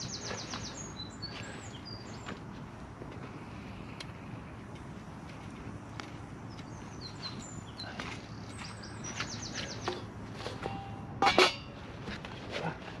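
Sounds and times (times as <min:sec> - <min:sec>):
small birds singing: 0:00.0 - 0:11.1.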